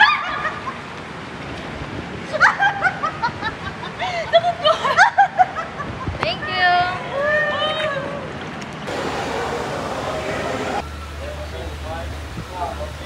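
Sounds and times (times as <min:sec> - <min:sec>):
rushing water: 0:00.0 - 0:13.0
people laughing: 0:02.3 - 0:06.2.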